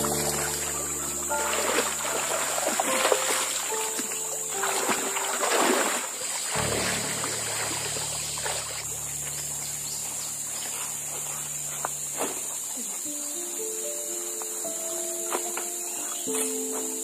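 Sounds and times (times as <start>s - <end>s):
background music: 0.0s - 10.4s
water splashing: 0.0s - 13.0s
high insect buzz: 0.0s - 17.0s.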